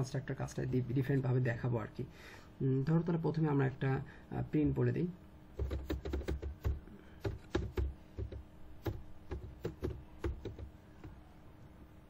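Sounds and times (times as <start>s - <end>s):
computer keyboard typing: 5.6s - 11.2s.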